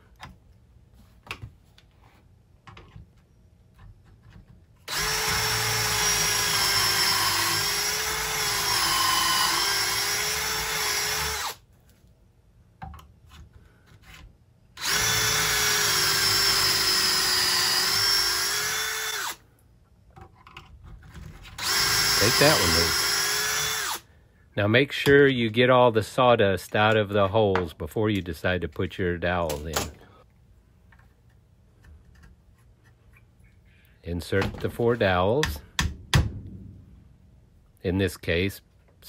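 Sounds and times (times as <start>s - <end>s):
cordless drill whine: 4.9s - 11.6s, 14.8s - 19.4s, 21.6s - 24.0s.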